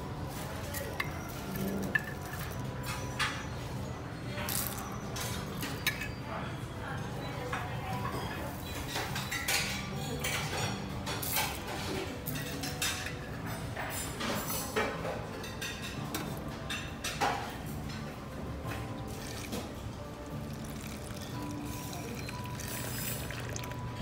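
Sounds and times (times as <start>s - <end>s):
metal spoon scraping glass jar: 0.8s - 3.3s.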